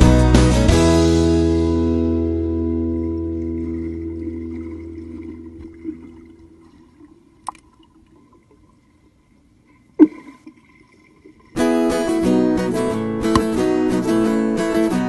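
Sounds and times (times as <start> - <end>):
guitar music: 0.0 - 6.6, 11.6 - 15.0.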